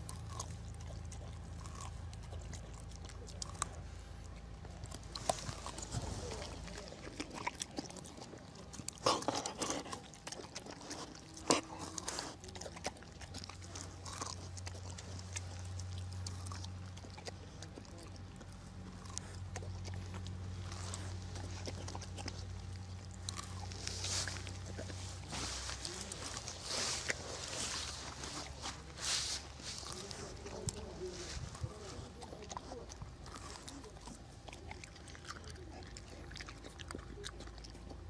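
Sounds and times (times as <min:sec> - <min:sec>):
steady low hum: 0:00.0 - 0:38.0
dog sniffing: 0:19.0 - 0:37.2
rustling vegetation: 0:20.0 - 0:34.1.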